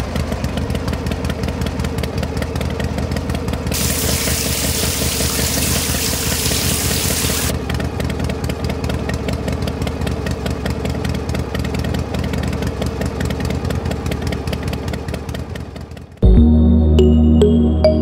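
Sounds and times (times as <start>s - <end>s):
small motor humming: 3.7s - 7.5s.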